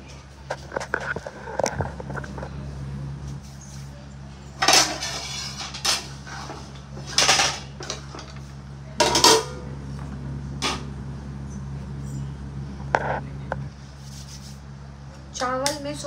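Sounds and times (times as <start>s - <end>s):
steady low hum: 0.0s - 16.0s
metal utensils and pots clattering: 4.6s - 8.4s, 9.0s - 9.6s.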